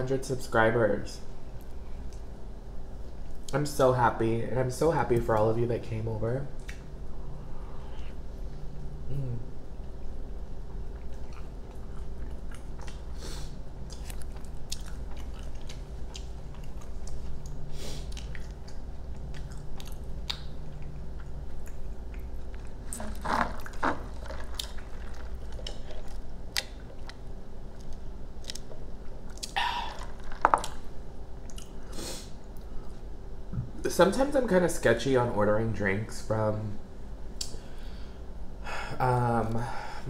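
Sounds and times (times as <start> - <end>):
wet chewing and mouth smacks: 10.9 - 13.2, 13.8 - 30.8, 31.4 - 31.8.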